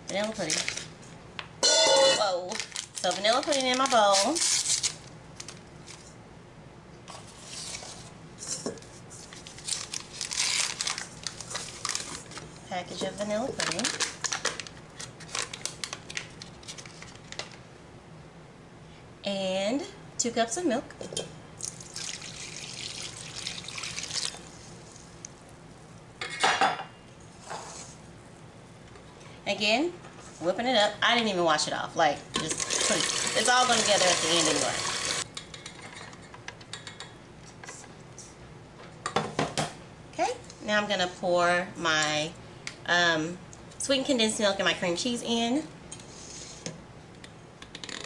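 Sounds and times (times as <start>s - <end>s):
packet rustling: 2.4s - 6.0s, 9.2s - 12.5s, 13.4s - 17.6s
milk pouring into a steel bowl: 21.8s - 24.4s.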